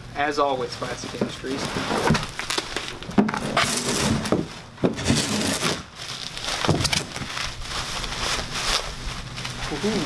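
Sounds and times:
bubble wrap crinkling: 0:00.7 - 0:10.0
bubble wrap cracks: 0:01.6 - 0:03.1, 0:05.4 - 0:10.0.

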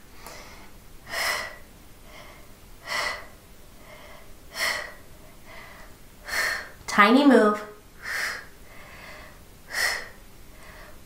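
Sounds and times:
woman exhaling forcefully: 0:08.0 - 0:08.5, 0:09.1 - 0:11.0.

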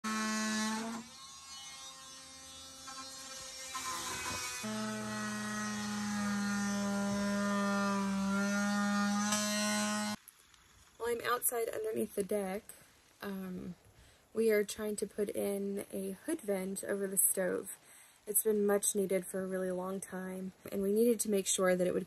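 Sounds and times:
cordless drill drilling into wood: 0:00.1 - 0:10.2.

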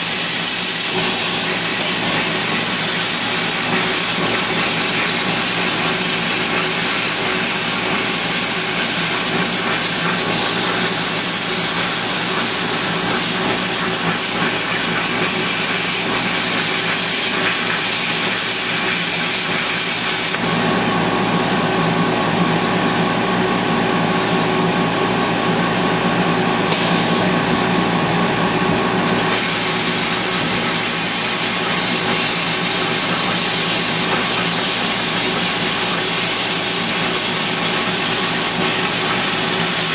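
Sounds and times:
cutting torch hissing: 0:00.0 - 0:20.5, 0:29.1 - 0:39.9.

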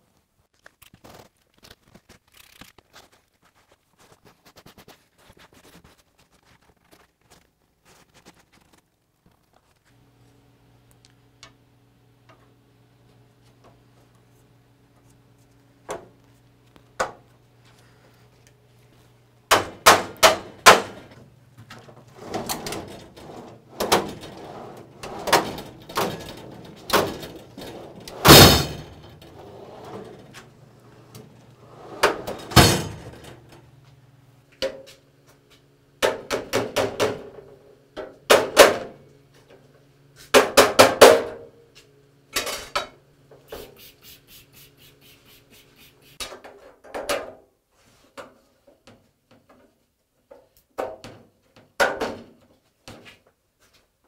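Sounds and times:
sharp metal bang: 0:28.2 - 0:28.9
spray bottle squirts: 0:43.5 - 0:46.2.

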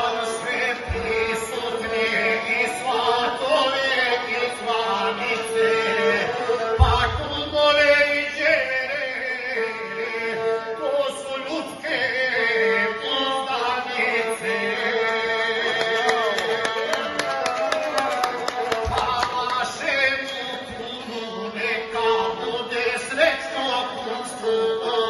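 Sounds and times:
bowed single-string fiddle: 0:00.0 - 0:15.6.

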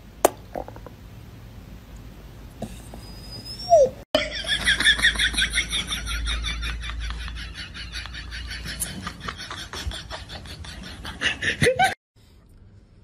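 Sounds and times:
dog whining: 0:02.6 - 0:04.0.

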